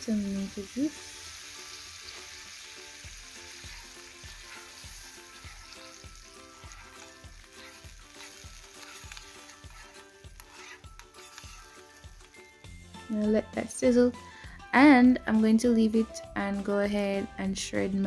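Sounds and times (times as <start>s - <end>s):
sauce sizzling in a frying pan: 0.0s - 13.4s
spoon stirring: 3.5s - 12.4s
background music with a beat: 4.9s - 18.0s.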